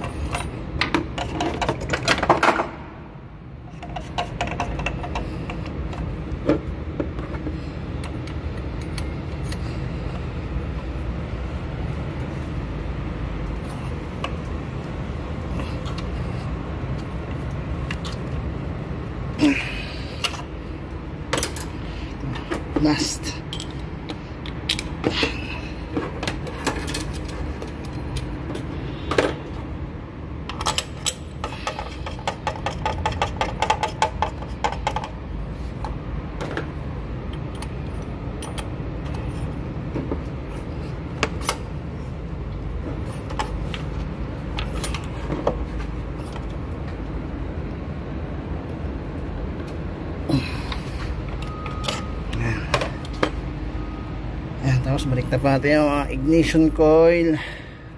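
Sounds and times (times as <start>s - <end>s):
metal wrench clinking: 0.0s - 2.2s, 22.4s - 25.6s, 26.2s - 28.7s, 30.5s - 35.2s, 37.3s - 39.6s, 51.3s - 53.2s.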